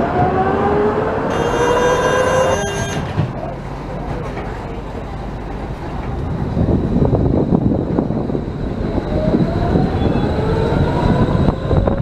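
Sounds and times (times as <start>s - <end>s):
tram motors whining: 0.0s - 12.0s
tram wheels rumbling: 0.0s - 12.0s
high-pitched squeal: 1.3s - 3.2s.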